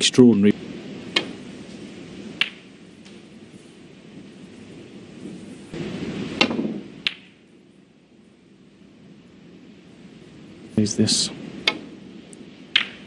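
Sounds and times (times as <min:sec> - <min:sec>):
snooker balls clicking: 0:02.4 - 0:02.6, 0:06.4 - 0:07.4, 0:12.8 - 0:13.0.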